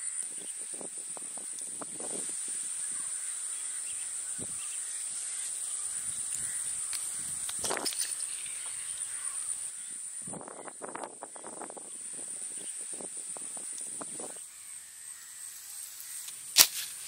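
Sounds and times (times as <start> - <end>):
crows cawing: 2.7 - 7.3, 8.5 - 11.6.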